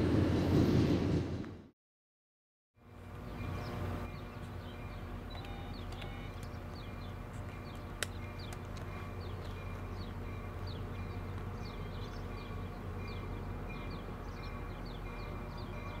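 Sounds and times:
diesel train rumbling: 0:02.8 - 0:16.0
birds chirping: 0:03.0 - 0:16.0.

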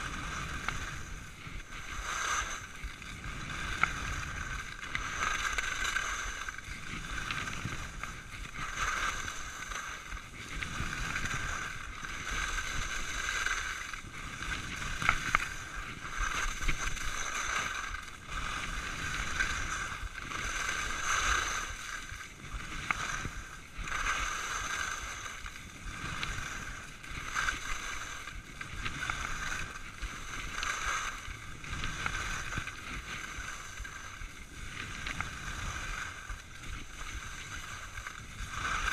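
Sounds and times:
skis scraping over snow: 0:00.0 - 0:38.9.

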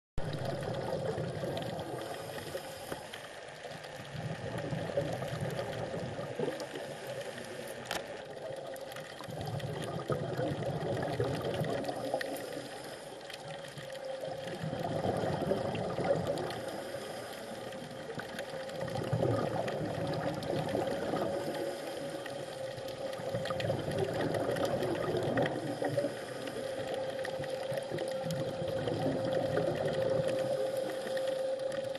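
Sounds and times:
exhaust bubbles: 0:00.2 - 0:02.5, 0:04.0 - 0:06.9, 0:08.4 - 0:12.6, 0:13.8 - 0:16.8, 0:17.6 - 0:31.9
faint hum: 0:00.2 - 0:31.9
regulator breathing underwater: 0:01.1 - 0:03.5, 0:09.3 - 0:13.7, 0:14.6 - 0:31.8.

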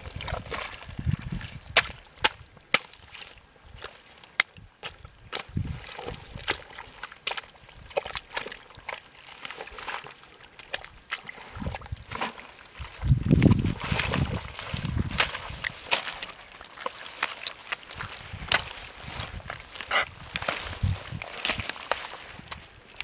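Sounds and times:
hands sloshing in muddy water: 0:00.0 - 0:23.0
weed stems snapping: 0:15.1 - 0:22.8.

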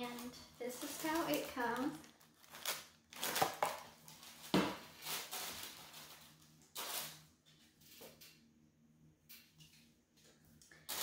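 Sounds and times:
tissue paper rustling: 0:00.0 - 0:07.2.

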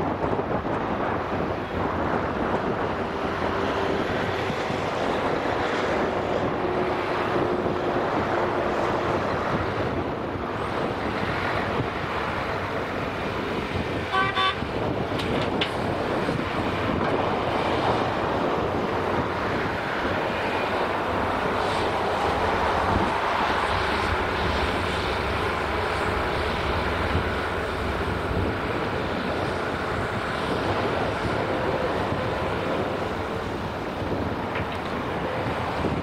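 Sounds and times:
wind on microphone: 0:00.0 - 0:36.0
excavator diesel engine working: 0:00.1 - 0:36.0
short horn toots: 0:14.1 - 0:14.6.

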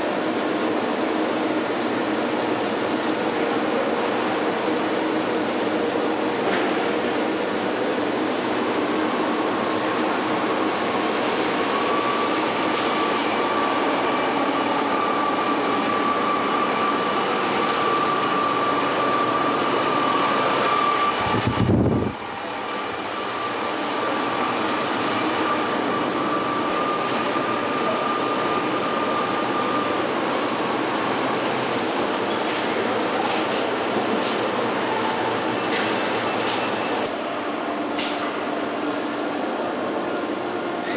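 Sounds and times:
factory machinery hum and hiss: 0:00.0 - 0:40.9
high machine whine: 0:00.0 - 0:40.9.

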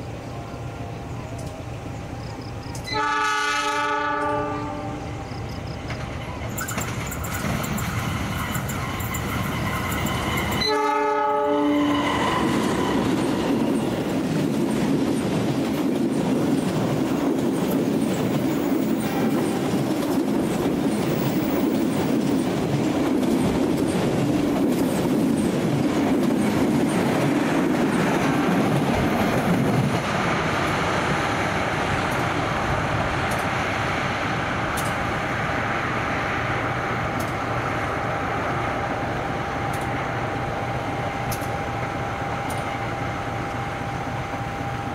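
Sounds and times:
train coaches rumbling past: 0:00.0 - 0:44.9
locomotive horn: 0:02.8 - 0:05.1, 0:10.6 - 0:12.9.

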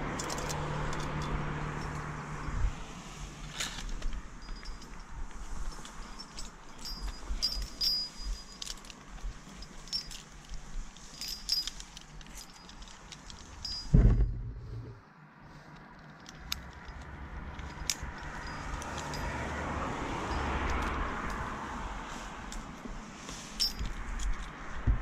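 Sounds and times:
climbing hardware clinking: 0:00.0 - 0:02.8, 0:03.4 - 0:15.0, 0:15.7 - 0:21.5, 0:22.5 - 0:25.0
loud thump: 0:13.9 - 0:15.0.

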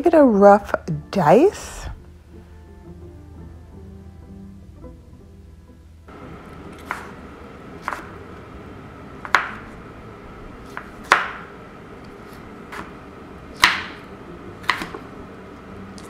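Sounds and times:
knife chopping on wooden board: 0:06.7 - 0:07.2, 0:07.8 - 0:08.2, 0:09.2 - 0:09.7, 0:10.6 - 0:11.5, 0:12.3 - 0:12.9, 0:13.5 - 0:14.0, 0:14.6 - 0:15.1.

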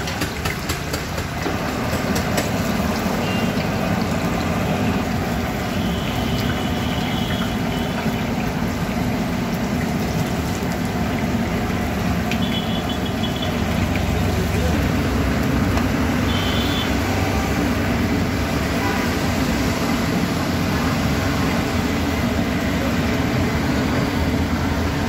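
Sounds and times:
oil sizzling and bubbling: 0:00.0 - 0:25.0.

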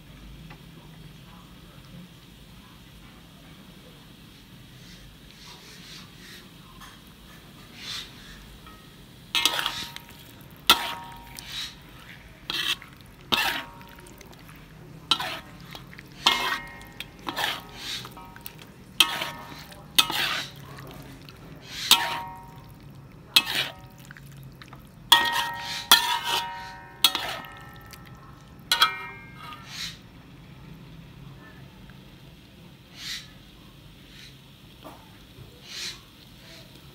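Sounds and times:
metal spatula scraping a pan: 0:07.7 - 0:24.0, 0:25.1 - 0:30.0.

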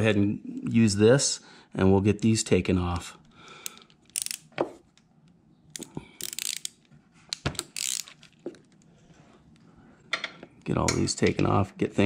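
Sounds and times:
ratchet clicking: 0:03.7 - 0:04.5, 0:05.8 - 0:08.2.

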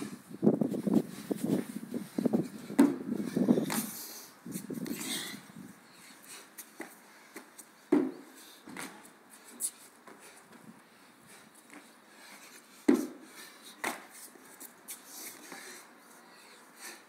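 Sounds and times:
feet thudding on box: 0:02.4 - 0:03.9, 0:06.8 - 0:09.1, 0:12.9 - 0:13.2
feet landing on tiles: 0:02.7 - 0:03.9, 0:06.8 - 0:09.1, 0:13.8 - 0:14.2.

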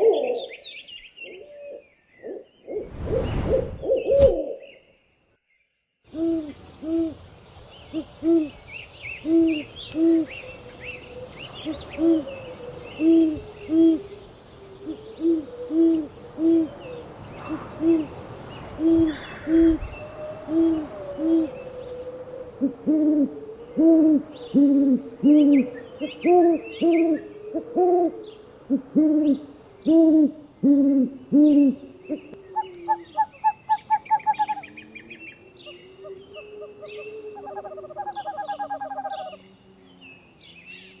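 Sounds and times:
owl hooting: 0:03.5 - 0:04.7, 0:18.8 - 0:39.4
bird chirps and trills: 0:31.3 - 0:41.0.

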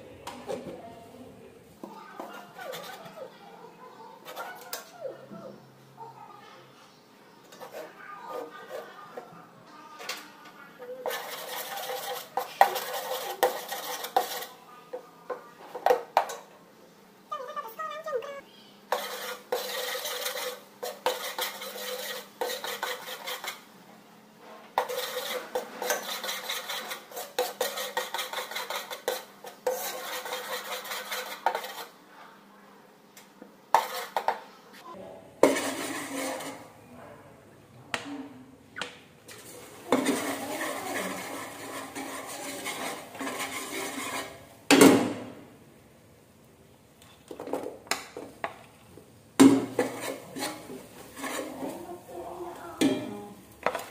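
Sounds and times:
utensil scraping a pot: 0:02.2 - 0:03.3, 0:07.5 - 0:09.3, 0:10.8 - 0:14.6, 0:18.9 - 0:23.7, 0:24.5 - 0:32.0, 0:33.7 - 0:34.4, 0:35.4 - 0:36.8, 0:39.3 - 0:44.5, 0:49.5 - 0:53.9.

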